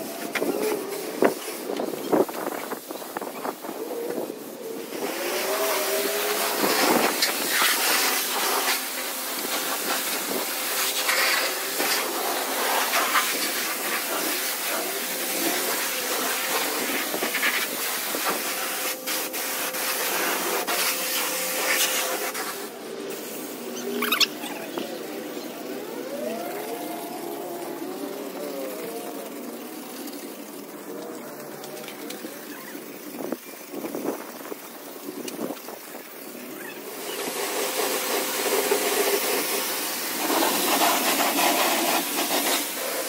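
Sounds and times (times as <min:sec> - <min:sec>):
pressure washer spraying water: 0:00.0 - 0:43.0.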